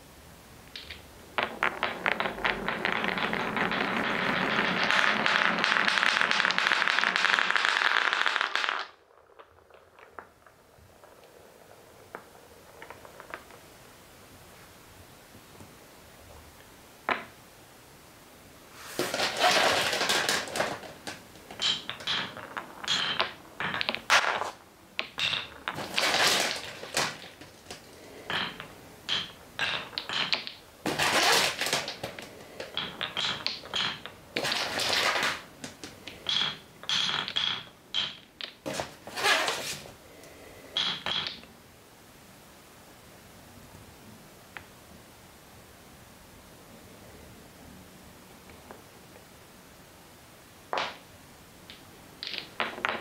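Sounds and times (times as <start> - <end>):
wooden balls rolling on track: 0.6 - 14.6, 17.0 - 17.4, 18.8 - 41.6, 50.6 - 53.0
wooden balls clacking together: 0.7 - 13.9, 17.1 - 17.4, 18.9 - 41.6, 50.7 - 53.0.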